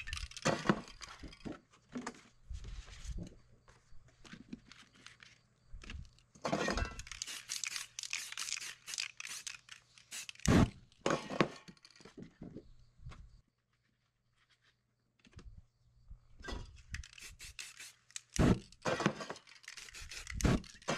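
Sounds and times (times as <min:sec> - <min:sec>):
spray paint can hissing: 0:07.0 - 0:10.7, 0:17.0 - 0:18.6, 0:19.7 - 0:20.8.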